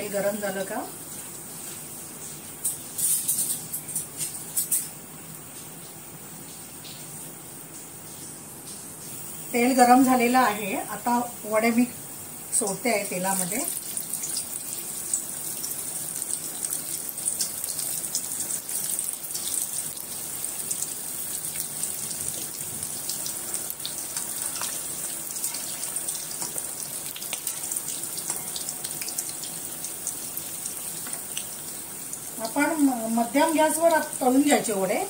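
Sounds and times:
deep-frying in hot oil: 0.0s - 35.0s
oil crackling and popping: 13.3s - 32.7s.

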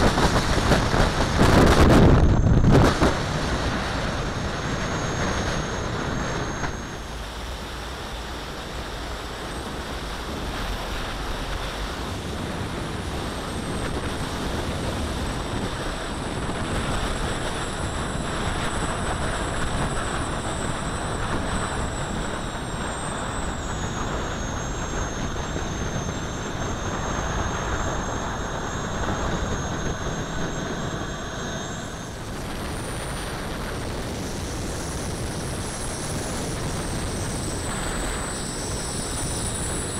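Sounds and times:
exhaust and air rush: 0.0s - 39.9s
turbine whine: 0.0s - 39.9s.

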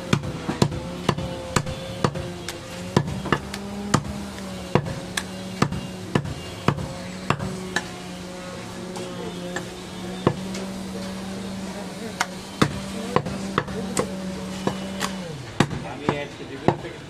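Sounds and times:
cleaver chopping meat on wood: 0.0s - 7.9s, 9.5s - 10.5s, 12.2s - 16.9s
steady low hum: 0.0s - 17.0s.

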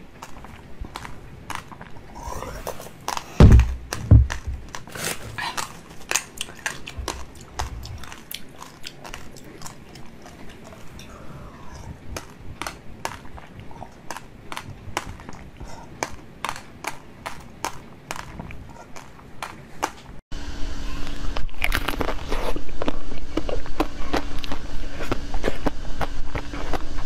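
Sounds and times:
low thumps: 3.4s - 4.7s.

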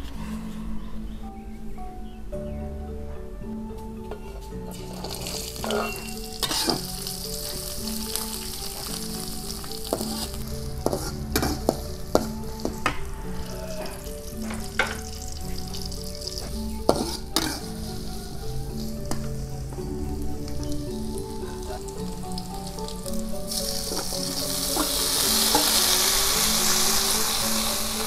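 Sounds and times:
metal spatula scraping wok: 4.7s - 7.7s, 9.8s - 12.8s, 14.6s - 18.1s
food sizzling in hot oil: 4.7s - 12.8s, 13.4s - 19.1s, 21.0s - 28.0s.

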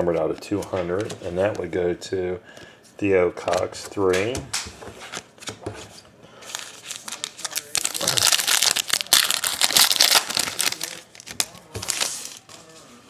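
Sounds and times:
card pack wrapper crinkling: 6.5s - 12.5s.

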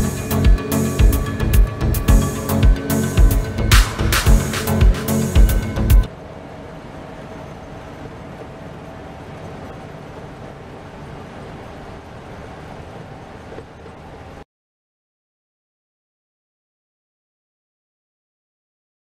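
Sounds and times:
bus engine and road rumble: 0.0s - 14.5s.

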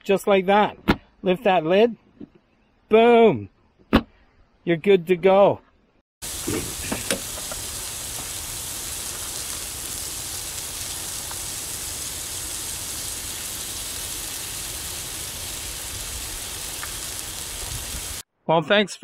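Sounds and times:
food sizzling on a griddle: 6.2s - 18.3s.

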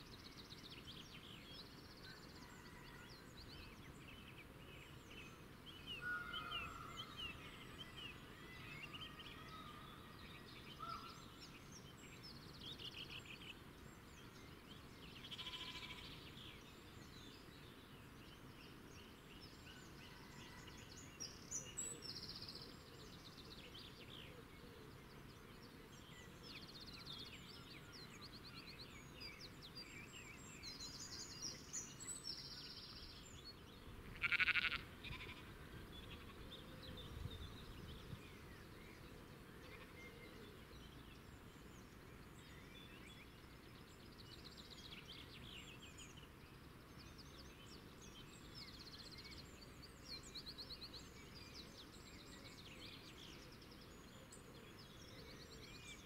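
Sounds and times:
small birds chirping: 3.2s - 20.4s, 21.0s - 56.0s
faint sheep bleat: 15.3s - 16.2s, 34.0s - 36.5s, 39.6s - 40.2s.

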